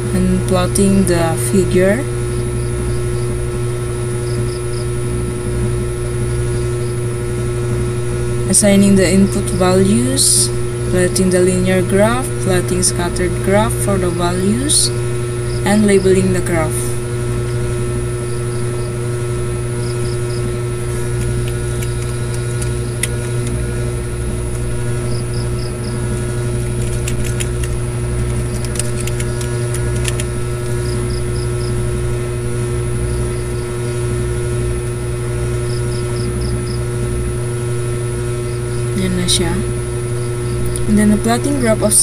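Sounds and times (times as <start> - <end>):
constant tone: 0.0 - 42.0
low machine hum: 0.0 - 42.0
sharp clicks: 21.1 - 23.6, 26.6 - 31.2.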